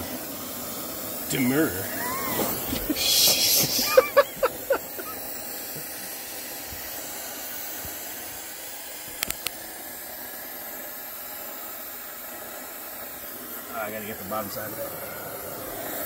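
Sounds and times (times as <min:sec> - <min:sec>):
torch burning with steady hiss: 0:00.0 - 0:16.0
quick clicks: 0:09.2 - 0:09.6.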